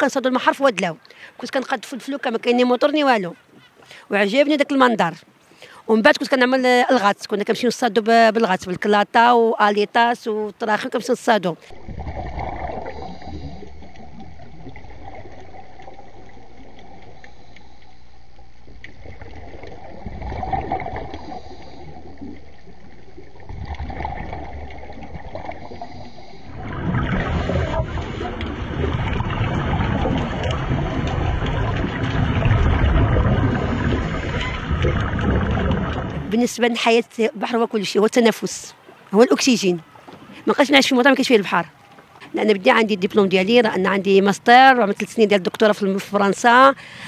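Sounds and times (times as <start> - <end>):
underwater bubbling: 10.6 - 37.4
underwater rumble: 11.6 - 36.6.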